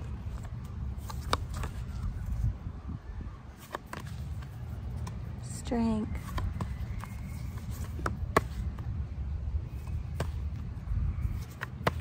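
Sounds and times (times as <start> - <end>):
cards shuffling in hands: 0.0 - 2.5, 3.5 - 5.5, 6.2 - 8.9, 9.7 - 12.0
steady low rumble: 4.4 - 11.5.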